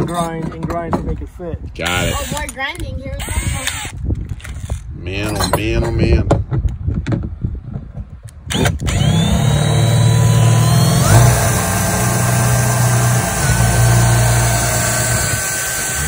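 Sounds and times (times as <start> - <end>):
cordless drill boring: 1.9 - 2.6, 3.2 - 4.0, 8.5 - 16.0.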